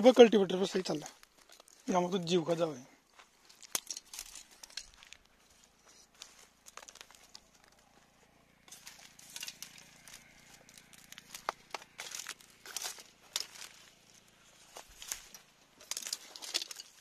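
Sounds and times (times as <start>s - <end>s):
straw stubble crunching underfoot: 0.0s - 17.0s
faint diesel engine hum: 4.5s - 16.6s.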